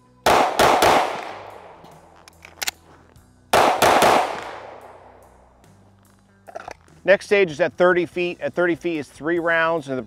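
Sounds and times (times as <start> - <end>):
pistol shots: 0.2 - 2.9, 3.5 - 5.6
pistol magazine change clicks: 0.7 - 3.0.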